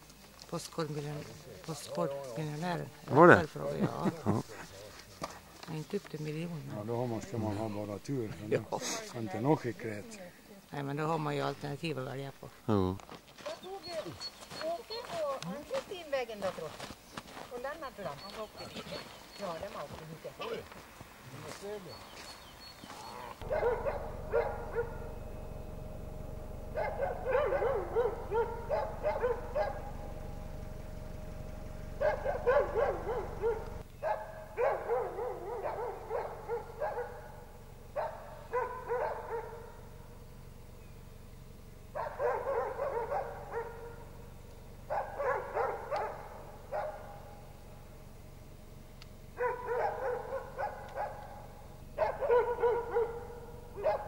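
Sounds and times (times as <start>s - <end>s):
low rumble: 23.3s - 34.6s.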